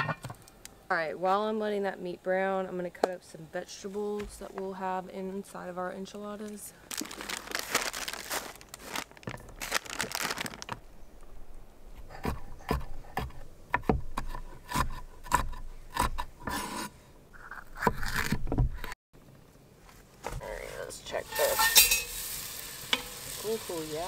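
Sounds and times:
knife cutting vegetables on board: 12.2s - 16.9s.

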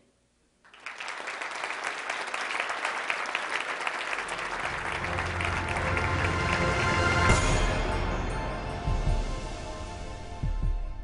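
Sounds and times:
audience applause: 0.7s - 8.0s.

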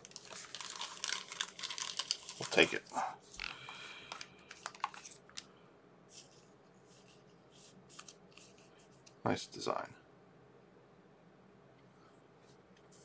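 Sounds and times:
trading cards rustling and clicking: 0.1s - 5.5s.

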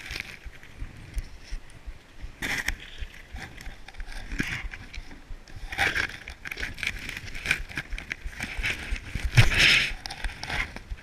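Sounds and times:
snow scraping and crunching: 0.0s - 11.0s.

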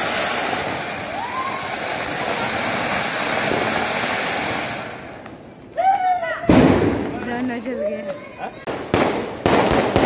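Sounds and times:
firework fountain hissing: 0.0s - 5.8s.

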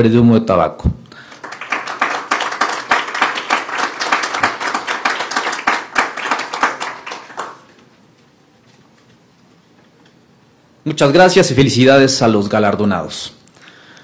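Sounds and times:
audience applauding: 1.2s - 7.8s.

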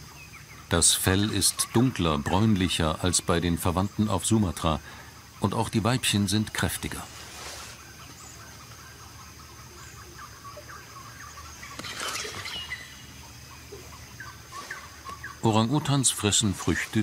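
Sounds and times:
leaves and branches rustling: 0.0s - 17.0s
steady high insect drone: 0.0s - 17.0s
small chirps: 11.4s - 15.5s.

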